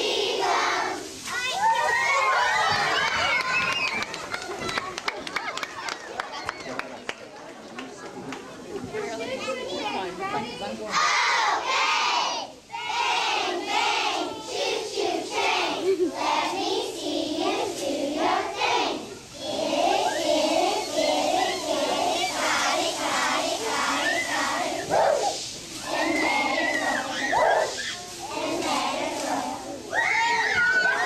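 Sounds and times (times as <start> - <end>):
girls chanting a cheer: 0.0 - 3.1, 10.9 - 31.0.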